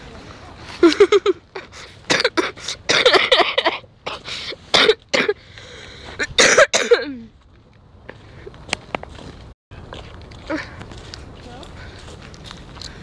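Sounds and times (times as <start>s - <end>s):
person coughing: 2.1s - 5.4s, 6.3s - 7.3s.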